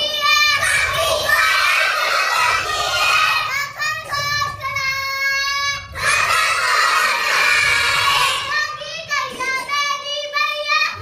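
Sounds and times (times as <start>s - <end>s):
children chanting in unison: 0.0s - 11.0s
girl chanting a rhyme: 3.4s - 6.3s, 8.4s - 11.0s.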